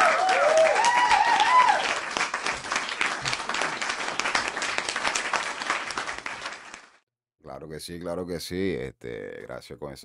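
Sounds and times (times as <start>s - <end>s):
crowd cheering: 0.0s - 6.9s
crowd clapping: 0.0s - 7.0s.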